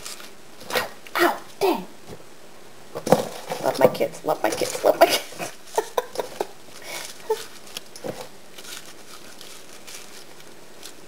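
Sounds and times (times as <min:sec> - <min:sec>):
sticky popcorn crinkling and rustling: 0:00.0 - 0:01.2, 0:02.9 - 0:11.0.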